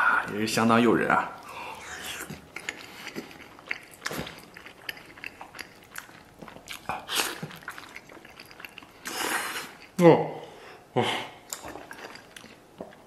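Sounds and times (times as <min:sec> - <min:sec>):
breathing: 0:01.4 - 0:02.0, 0:10.4 - 0:10.9
wet mouth clicks: 0:01.8 - 0:10.0
man blowing on food: 0:09.0 - 0:09.8.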